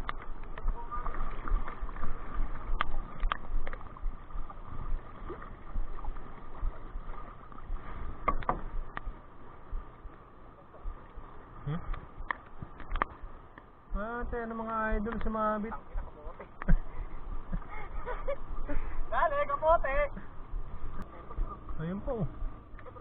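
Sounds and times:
water sloshing against hull: 0.0s - 23.0s
wind on microphone: 16.0s - 22.7s.

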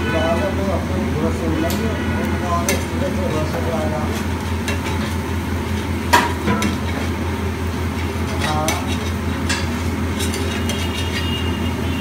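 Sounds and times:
egg sizzling: 2.6s - 11.9s
metal spatula scraping griddle: 8.0s - 11.7s.

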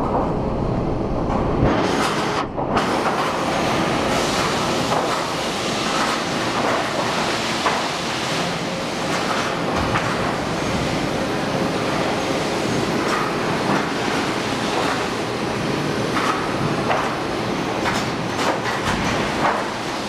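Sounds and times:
sharp knocks and clanks: 4.1s - 8.0s, 16.1s - 19.9s.

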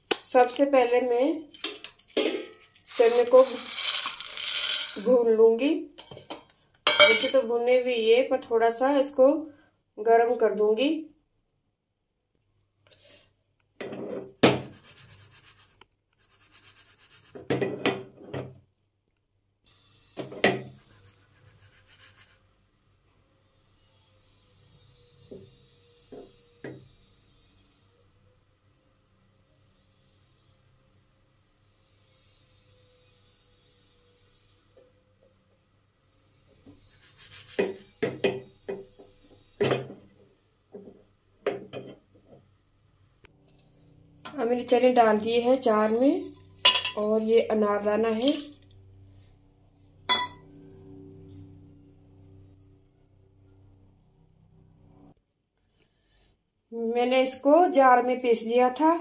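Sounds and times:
chickpeas rattling in pan: 2.8s - 5.2s
pan knocking: 46.3s - 47.1s.

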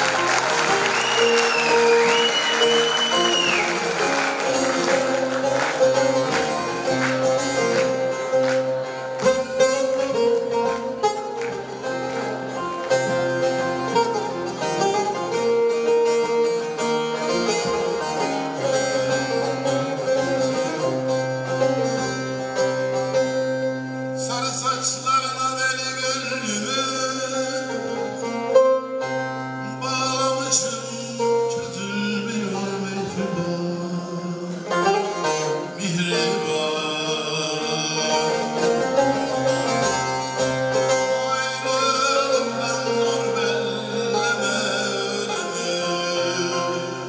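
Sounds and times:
long-necked lute plucked melody: 0.0s - 47.0s
whistle rising and falling: 0.9s - 3.9s.

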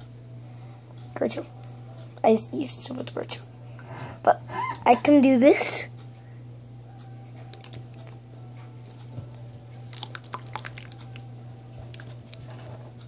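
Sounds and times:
slime squelching: 7.5s - 8.1s, 9.8s - 11.2s, 11.8s - 12.8s.

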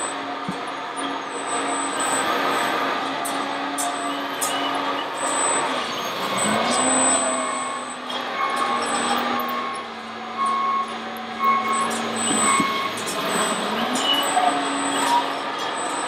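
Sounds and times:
model diesel engine drone: 0.0s - 16.0s
short beeps: 6.4s - 15.2s.

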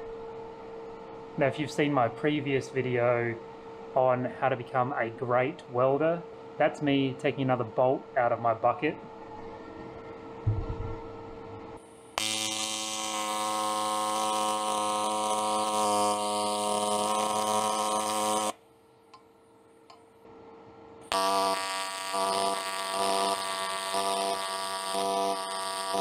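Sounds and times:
welding arc buzzing: 10.5s - 18.6s, 21.0s - 26.0s.

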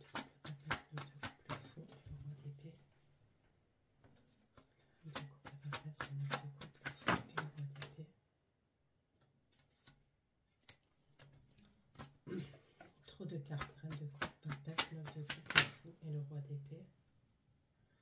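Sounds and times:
cards shuffled with flicks: 0.0s - 2.0s, 4.1s - 7.9s, 9.5s - 12.9s, 13.5s - 15.8s.

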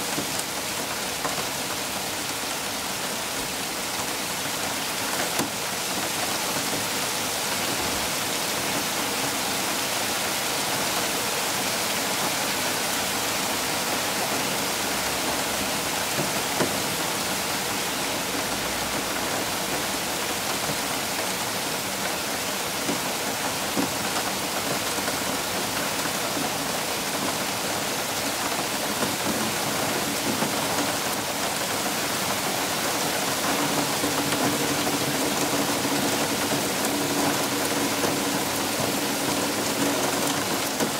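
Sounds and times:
hail falling on soil and plants: 0.0s - 40.9s.

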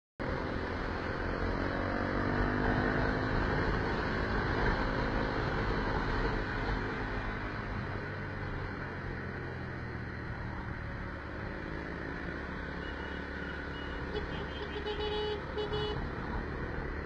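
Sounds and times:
wind and road noise: 0.2s - 17.0s.

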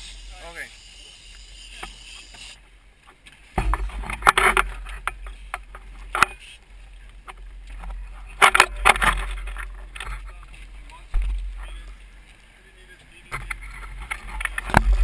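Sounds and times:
water noise: 0.0s - 15.0s
wind: 0.0s - 15.0s
sharp knocks and thumps: 3.5s - 6.3s, 11.1s - 11.7s.

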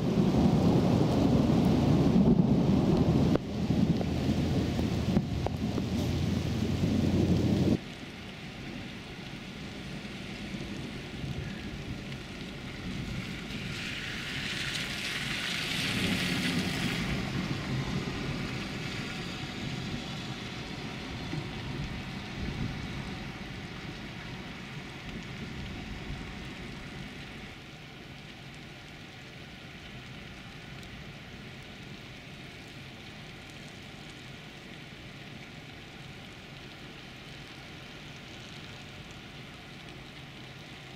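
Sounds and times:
rain on flooded street: 0.0s - 40.9s
loud low rumble: 0.4s - 7.8s
tyres swishing through water: 13.0s - 21.3s.

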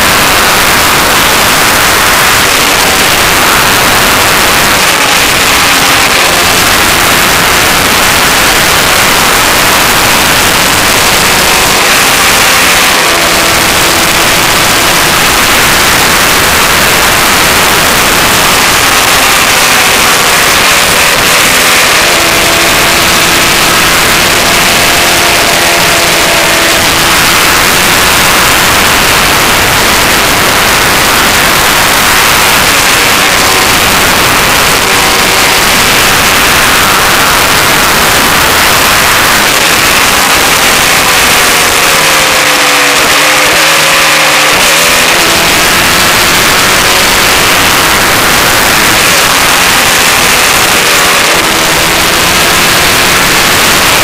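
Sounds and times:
faint motorcycle engine: 0.0s - 54.0s.

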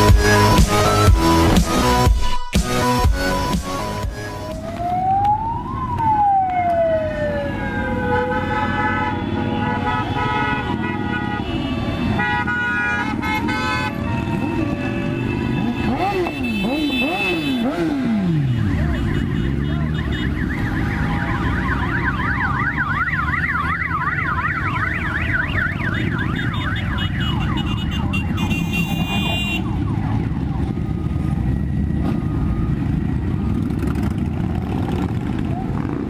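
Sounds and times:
motorcycles engine rumble: 0.0s - 36.0s
siren yelp: 4.1s - 8.7s, 13.9s - 16.4s, 18.3s - 34.0s.

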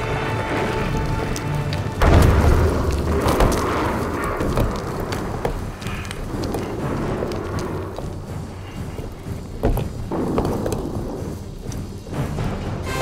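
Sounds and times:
rumbling with crashes and clatter: 0.0s - 12.9s
heavy boom: 2.0s - 4.4s.

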